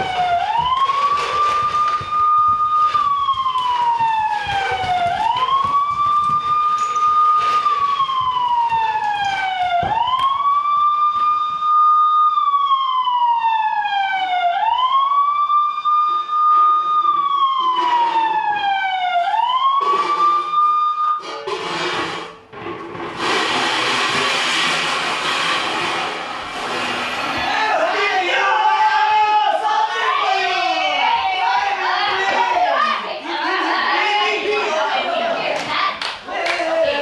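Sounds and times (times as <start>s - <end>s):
scattered knocks: 0.0s - 10.3s
siren wailing: 0.0s - 21.5s.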